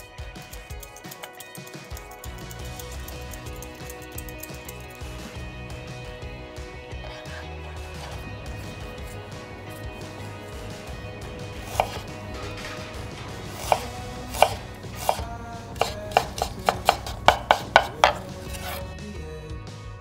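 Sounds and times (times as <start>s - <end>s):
knife cutting on wooden board: 7.0s - 10.9s, 11.6s - 12.2s, 13.5s - 18.8s.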